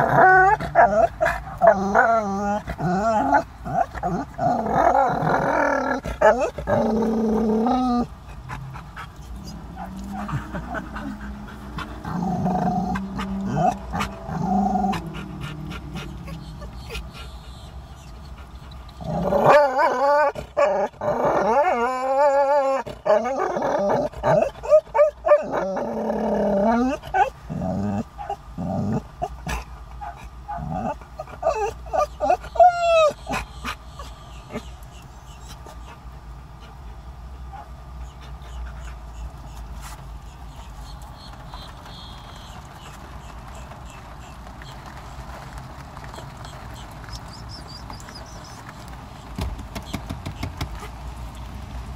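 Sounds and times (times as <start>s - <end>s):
dog growling and grumbling: 0.0s - 17.2s, 18.9s - 33.5s
dog yelping: 0.0s - 36.0s
low steady hum: 0.0s - 49.9s.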